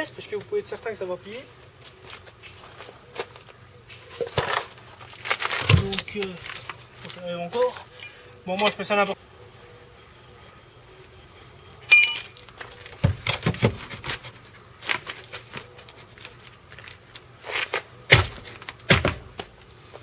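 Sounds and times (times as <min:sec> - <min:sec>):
car jack and wood block clatter: 0:11.8 - 0:19.6
metal clink with ringing: 0:11.9 - 0:12.4.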